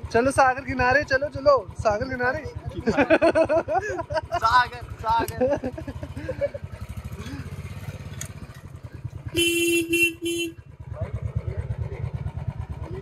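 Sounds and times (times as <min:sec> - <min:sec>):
motorcycle engine running slowly: 0:00.0 - 0:13.0
horn beeping: 0:09.2 - 0:10.7.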